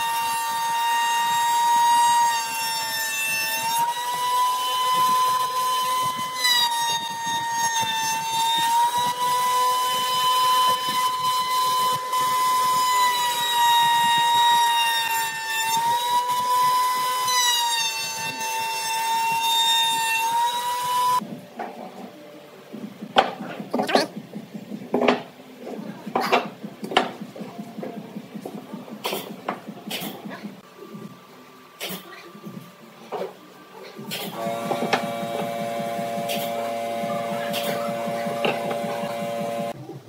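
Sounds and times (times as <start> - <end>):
wood router high whine: 0.0 - 21.2, 34.3 - 39.8.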